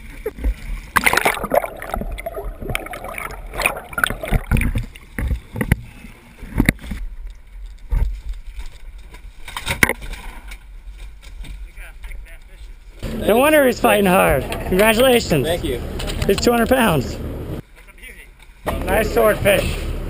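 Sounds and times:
water splashing against hull: 0:00.0 - 0:11.6
knocks and thumps: 0:03.6 - 0:05.9.

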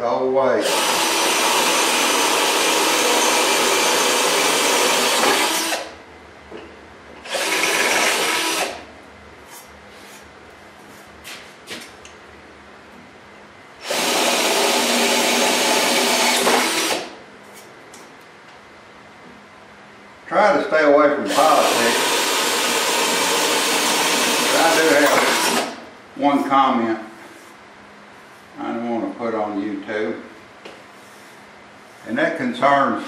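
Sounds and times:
cordless drill boring metal: 0:00.6 - 0:05.9, 0:07.2 - 0:08.8, 0:13.8 - 0:17.1, 0:21.3 - 0:25.8.

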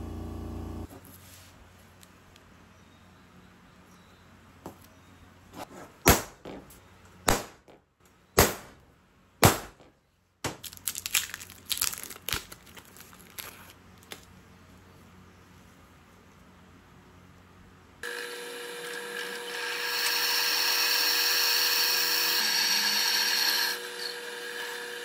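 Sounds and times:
centre punch striking metal: 0:09.4 - 0:09.8
paper template crackling and tearing: 0:10.7 - 0:14.3.

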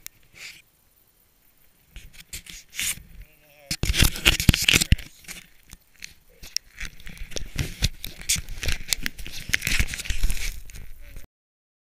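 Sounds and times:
fingers handling camera: 0:03.7 - 0:11.0.

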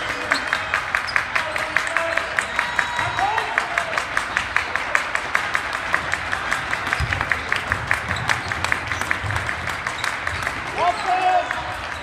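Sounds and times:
crowd clapping rhythmically: 0:00.0 - 0:12.0
basketball bouncing on wooden floor: 0:06.9 - 0:09.7.

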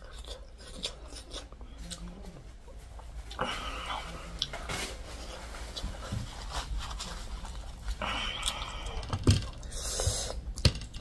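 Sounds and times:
hissing breath: 0:09.6 - 0:10.4.

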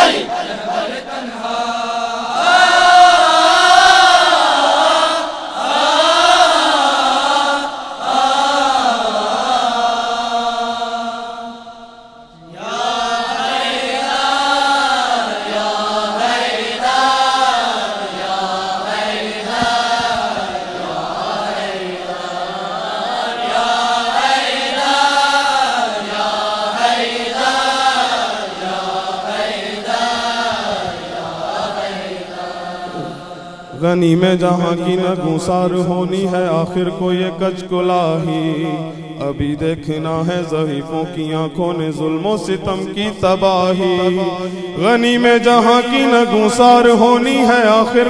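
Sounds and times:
choir singing long held notes: 0:00.0 - 0:34.1.

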